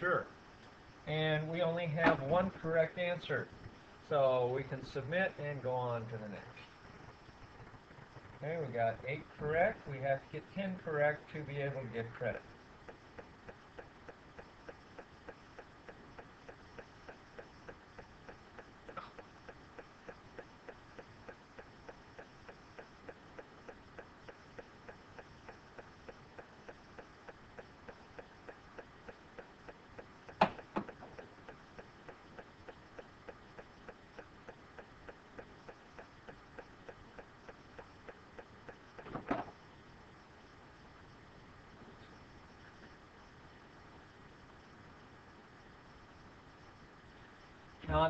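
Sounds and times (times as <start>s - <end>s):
faint clock-like ticking: 0.2s - 47.8s
sharp clicks: 12.8s - 39.7s.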